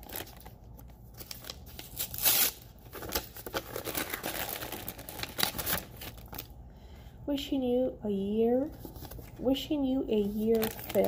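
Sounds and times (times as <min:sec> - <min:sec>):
paper crinkling and tearing: 0:00.0 - 0:06.5, 0:10.2 - 0:11.0.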